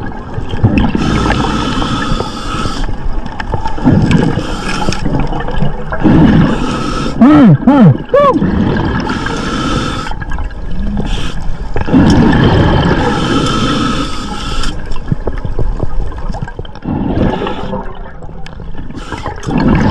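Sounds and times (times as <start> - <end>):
exhaled air bubbling: 0.0 - 19.9
scuba breathing underwater: 0.8 - 3.1, 3.8 - 5.3, 5.9 - 7.6, 8.4 - 15.0, 16.8 - 18.1, 18.8 - 19.9.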